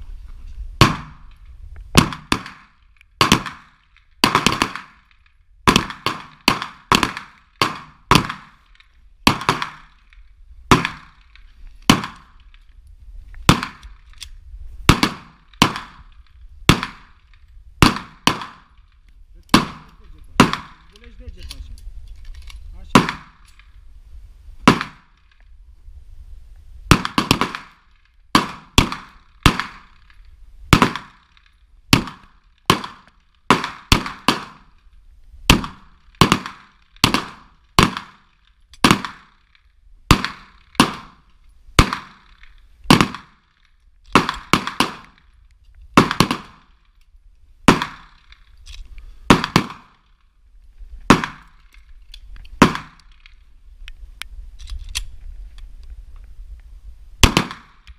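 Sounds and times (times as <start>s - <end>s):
pistol shots with echo: 0.8s - 1.2s, 2.0s - 5.1s, 5.7s - 8.6s, 9.3s - 10.0s, 10.7s - 11.3s, 11.9s - 12.4s, 13.5s - 13.8s, 14.9s - 17.2s, 17.8s - 18.7s, 19.5s - 20.9s, 22.9s - 23.4s, 24.6s - 25.2s, 26.9s - 27.8s, 28.4s - 30.0s, 30.7s - 31.3s, 31.9s - 34.7s, 35.5s - 39.4s, 40.1s - 41.2s, 41.8s - 43.5s, 44.1s - 45.2s, 46.0s - 46.7s, 47.7s - 48.3s, 49.3s - 50.0s, 51.1s - 51.6s, 52.6s - 53.1s, 57.2s - 57.8s.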